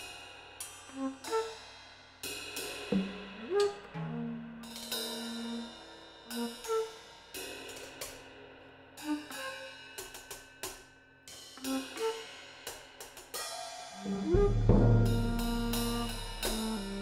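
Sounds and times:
cymbal and hi-hat strokes: 0.0 - 3.9, 4.6 - 17.0
short flute notes: 1.0 - 1.6, 3.0 - 4.6, 5.2 - 7.0, 14.0 - 17.0.

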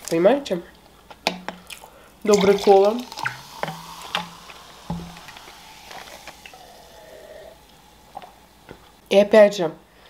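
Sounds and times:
sipping from a glass: 1.7 - 9.0
soft fizzing: 2.2 - 9.1
cola pouring into a glass: 2.3 - 9.0.

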